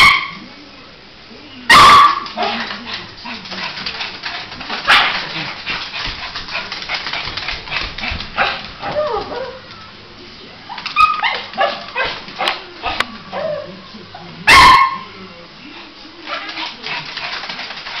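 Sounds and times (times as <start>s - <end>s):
small dog barking and yapping: 1.7s - 2.6s.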